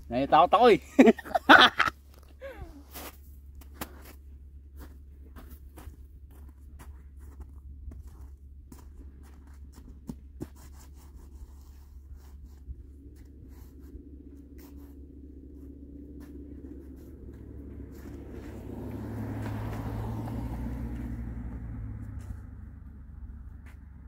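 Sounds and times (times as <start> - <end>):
snow crunching: 2.6 - 24.0
low rumble: 11.9 - 24.0.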